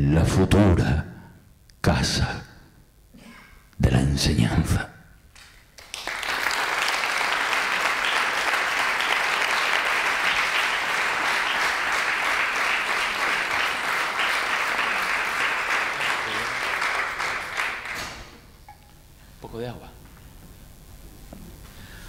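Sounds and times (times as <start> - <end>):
audience applauding: 5.4 - 18.4.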